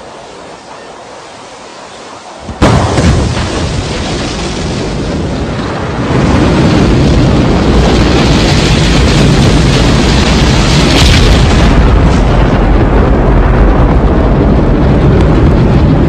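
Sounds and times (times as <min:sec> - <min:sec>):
steady hiss: 0:00.0 - 0:03.0
rocket engine roar: 0:00.0 - 0:16.0.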